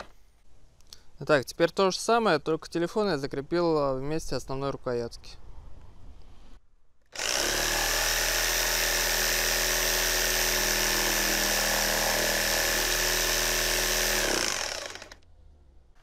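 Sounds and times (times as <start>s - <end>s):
reciprocating saw running: 7.2s - 15.2s.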